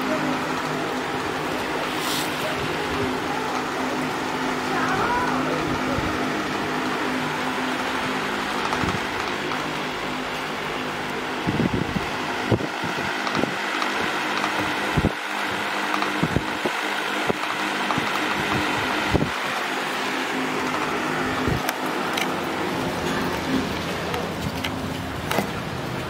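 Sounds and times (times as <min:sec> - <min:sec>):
mechanical hum: 0:00.0 - 0:26.0
hiss: 0:01.7 - 0:03.5.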